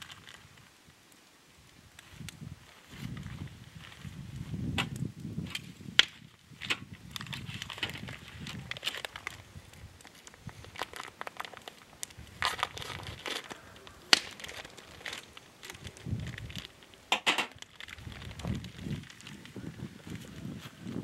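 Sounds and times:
plastic bag crinkling: 0:00.0 - 0:00.7, 0:06.4 - 0:21.0.

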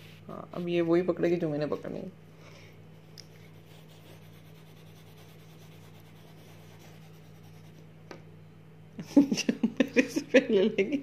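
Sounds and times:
steady low hum: 0:00.0 - 0:11.0
coloured pencils scratching on paper: 0:03.4 - 0:07.8.

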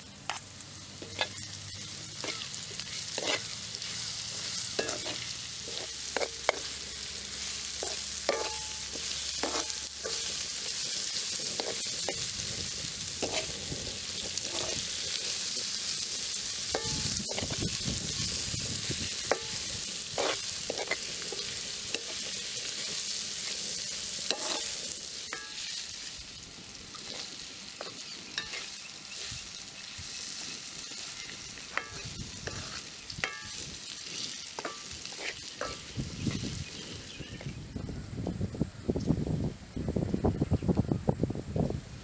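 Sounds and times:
vegetables sizzling in a wok: 0:00.0 - 0:38.9
spoon scraping and knocking pan: 0:01.0 - 0:03.5, 0:04.4 - 0:06.8, 0:07.8 - 0:12.2, 0:13.2 - 0:13.6, 0:14.4 - 0:14.8, 0:16.7 - 0:17.7, 0:19.2 - 0:22.9, 0:24.3 - 0:25.9, 0:27.8 - 0:29.3, 0:30.9 - 0:36.5.

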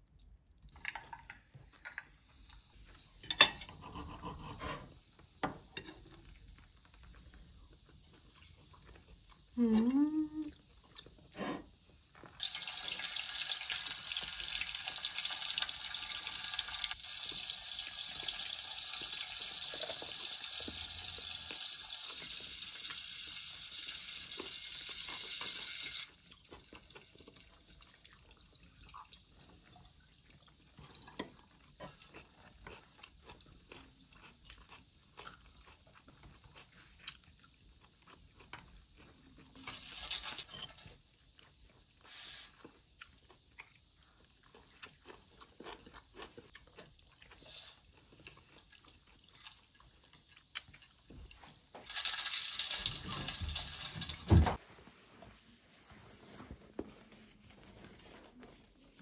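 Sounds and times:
water running: 0:51.7 - 0:54.6.

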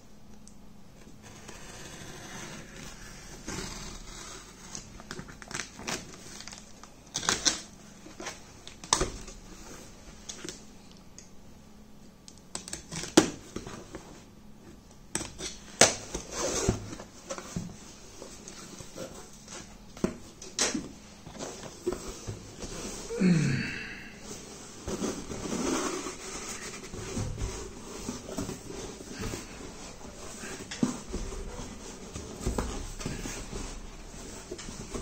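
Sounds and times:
cardboard flaps rustling: 0:24.3 - 0:35.0.

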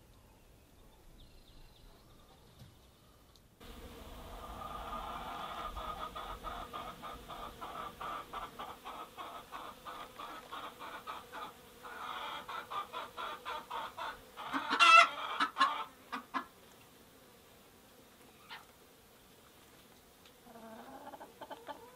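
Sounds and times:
hen clucking: 0:04.0 - 0:16.5, 0:20.5 - 0:21.9
hen squawk: 0:04.6 - 0:16.4.

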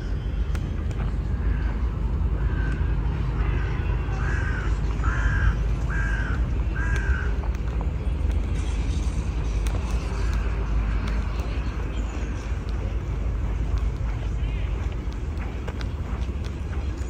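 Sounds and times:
steady low rumble: 0:00.0 - 0:17.0
crow cawing: 0:02.4 - 0:07.4.

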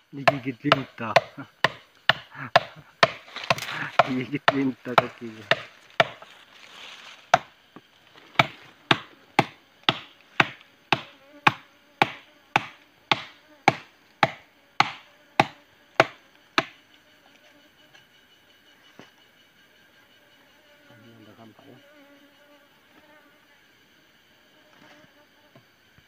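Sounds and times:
machete chopping wood: 0:00.2 - 0:06.2, 0:08.4 - 0:16.8.

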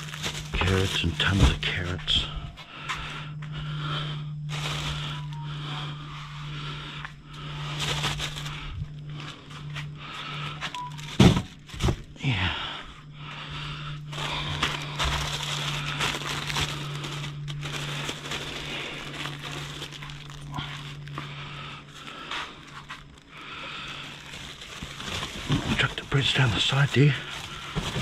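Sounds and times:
plastic packaging crinkling: 0:00.0 - 0:01.6, 0:04.5 - 0:05.4, 0:07.7 - 0:08.7, 0:10.7 - 0:12.1, 0:14.1 - 0:21.2, 0:22.6 - 0:28.0
steady low hum: 0:00.0 - 0:28.0.

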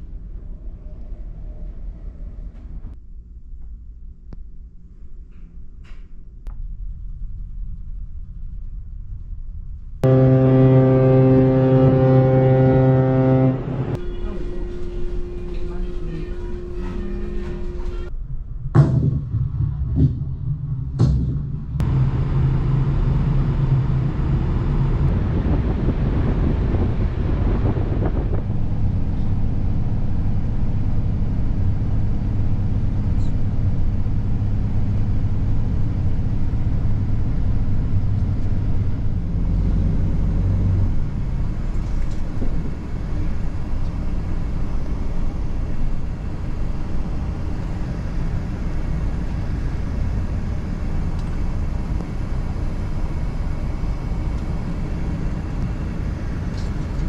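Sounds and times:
bus engine droning: 0:10.0 - 0:18.1, 0:20.9 - 0:57.0.

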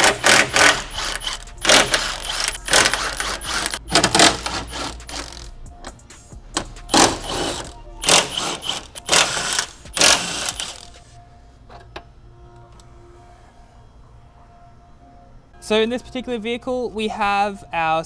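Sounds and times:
cordless ratchet whirring: 0:00.0 - 0:05.5, 0:06.9 - 0:11.0.

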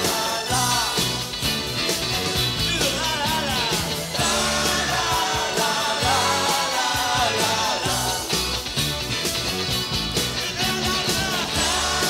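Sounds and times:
man singing: 0:00.0 - 0:01.2, 0:02.6 - 0:08.3, 0:10.3 - 0:12.0
pop-rock band playing live: 0:00.0 - 0:12.0.

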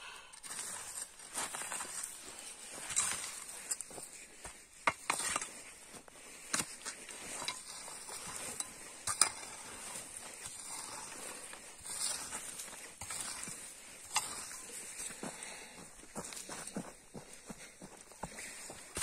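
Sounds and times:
shovel scraping soil: 0:00.4 - 0:16.7, 0:18.3 - 0:19.0
shovel clinking on stones: 0:06.6 - 0:15.2.

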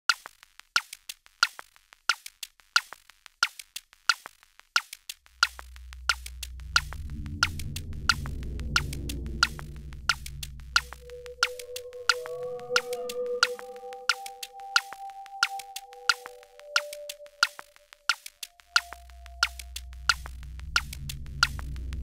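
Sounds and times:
drum machine clicks: 0:00.1 - 0:22.0
low synthesizer drone: 0:05.4 - 0:22.0.

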